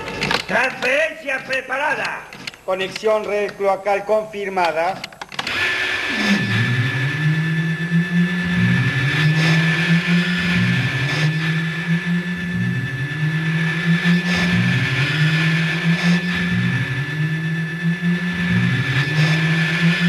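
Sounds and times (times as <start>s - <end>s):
high electronic whine: 0.0s - 20.0s
swooping electronic hum: 0.0s - 20.0s.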